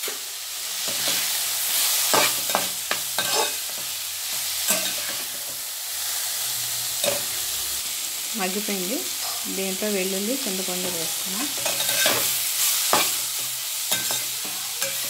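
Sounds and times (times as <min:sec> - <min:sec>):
frying sizzle: 0:00.0 - 0:15.0
spatula scraping metal pan: 0:10.8 - 0:15.0.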